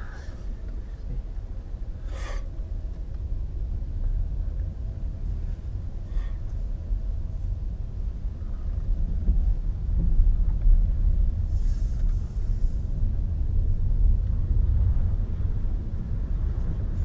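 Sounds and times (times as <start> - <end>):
road and tyre rumble in car: 0.0 - 17.0
brief hiss: 11.5 - 12.8.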